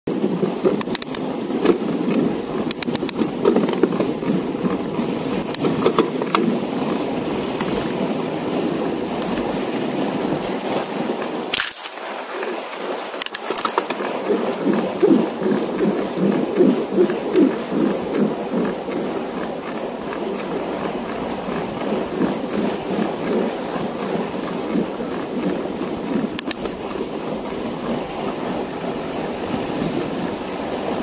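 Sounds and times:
bike clicks and rattles: 0:00.6 - 0:04.4, 0:05.4 - 0:06.6, 0:13.2 - 0:14.1, 0:26.3 - 0:27.0.

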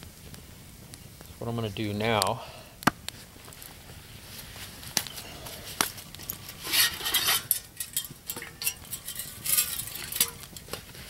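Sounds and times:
cloth rustling and scraping: 0:03.2 - 0:07.5
metal clicks and clinks: 0:07.2 - 0:10.5.

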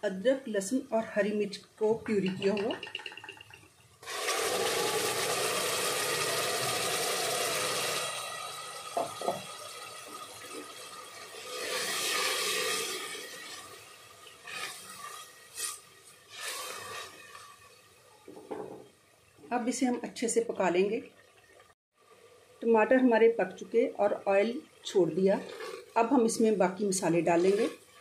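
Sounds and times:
puree sizzling in hot oil: 0:04.0 - 0:18.2, 0:24.7 - 0:28.0.

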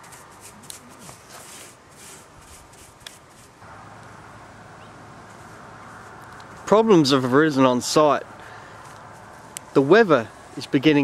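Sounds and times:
paintbrush scratching on metal roof: 0:00.0 - 0:03.6
steady low hum: 0:03.6 - 0:10.9.

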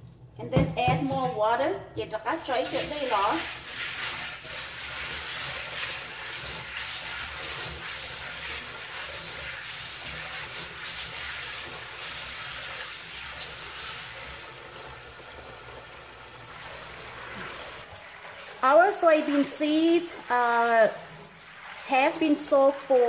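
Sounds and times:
faucet running into steel bowl: 0:02.3 - 0:23.0
hand swishing beans in water: 0:02.4 - 0:14.1.

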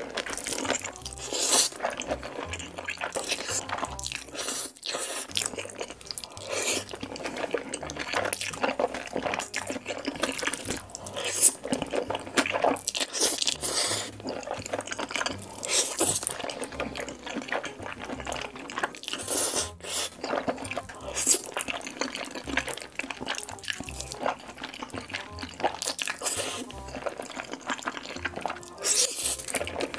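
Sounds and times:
chewing mouth smacks: 0:00.0 - 0:29.9
slurping noodles: 0:00.0 - 0:29.9.

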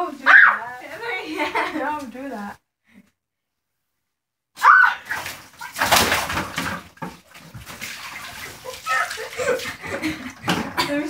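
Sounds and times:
water balloon bursting: 0:04.6 - 0:09.3
water splashing down: 0:04.6 - 0:11.0
water dripping: 0:05.0 - 0:11.0.

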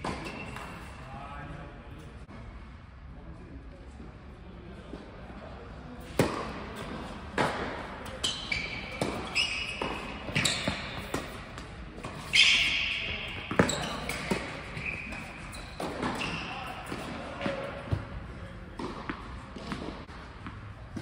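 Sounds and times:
shoes squeaking on court: 0:00.0 - 0:01.0, 0:08.0 - 0:18.2
tennis ball bounces: 0:08.9 - 0:12.3, 0:13.3 - 0:18.1, 0:18.8 - 0:21.0.

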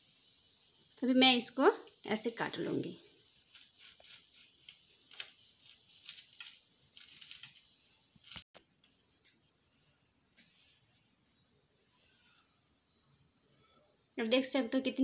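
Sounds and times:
knife sawing through toasted bread: 0:03.5 - 0:07.7.

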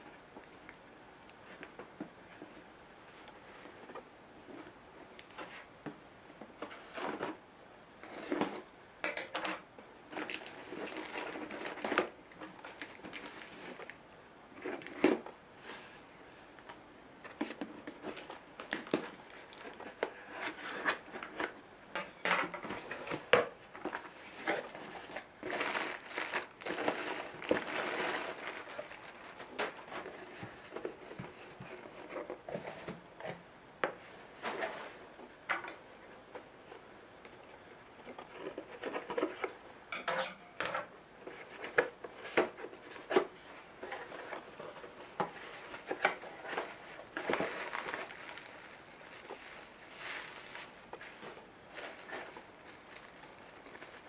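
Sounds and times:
cardboard and packing rustling: 0:01.4 - 0:07.4, 0:08.0 - 0:08.7, 0:09.4 - 0:16.0, 0:17.2 - 0:35.4, 0:37.6 - 0:39.6, 0:41.2 - 0:54.0
cardboard tearing: 0:24.4 - 0:30.3.

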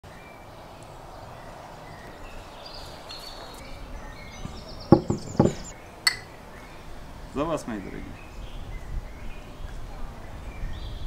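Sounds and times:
sharp knock: 0:04.4 - 0:06.3.

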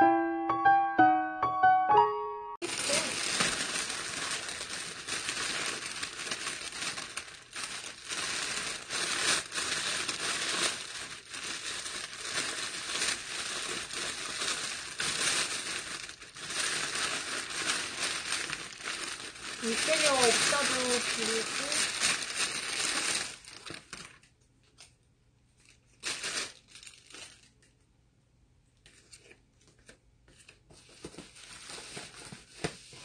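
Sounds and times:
plastic bag crinkling: 0:02.6 - 0:24.3, 0:25.6 - 0:27.6.

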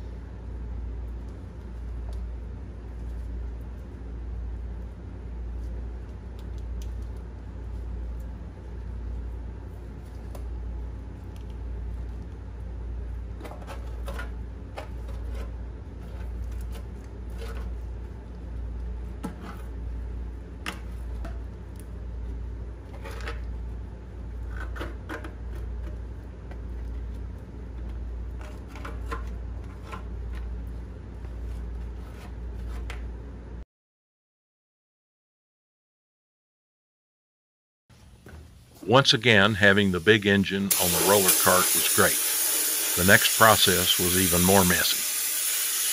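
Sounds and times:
steady low hum: 0:00.0 - 0:33.6.

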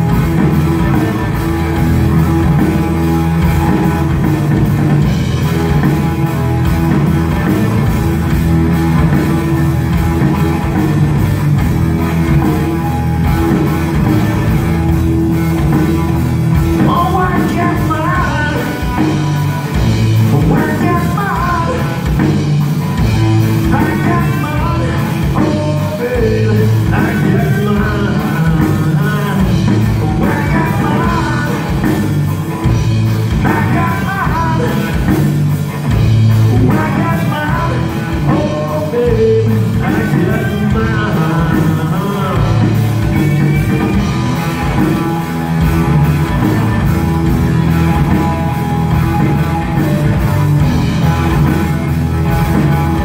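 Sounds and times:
bass guitar: 0:00.0 - 0:53.0
drum kit: 0:00.0 - 0:53.0
electric guitars: 0:00.0 - 0:53.0
person singing: 0:16.8 - 0:19.3, 0:20.2 - 0:22.2, 0:23.6 - 0:31.9, 0:33.4 - 0:35.2, 0:36.5 - 0:43.9.

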